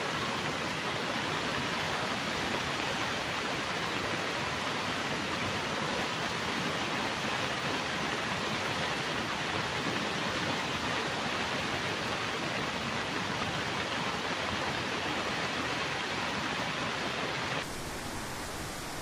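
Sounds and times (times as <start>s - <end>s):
quiet steady hiss: 17.6s - 19.0s.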